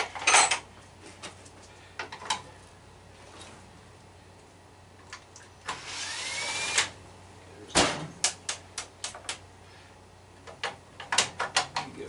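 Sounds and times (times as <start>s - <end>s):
cordless drill whining: 5.7s - 6.9s.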